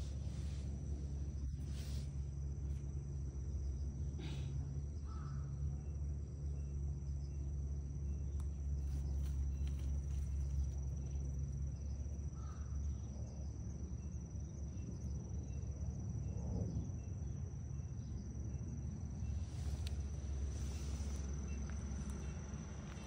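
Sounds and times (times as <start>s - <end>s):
crickets trilling: 0.0s - 23.0s
low steady background noise: 0.0s - 23.0s.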